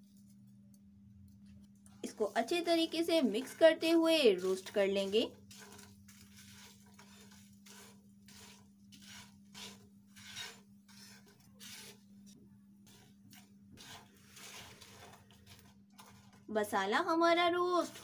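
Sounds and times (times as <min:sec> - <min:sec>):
spatula scraping frying pan: 0:02.2 - 0:16.4.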